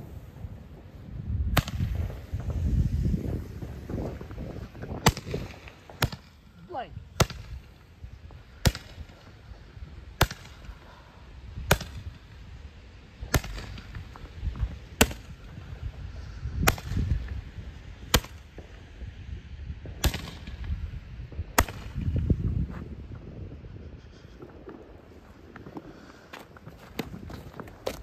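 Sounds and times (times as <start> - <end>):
roman candle firework popping: 0.0 - 10.9, 13.2 - 19.0, 19.8 - 23.2.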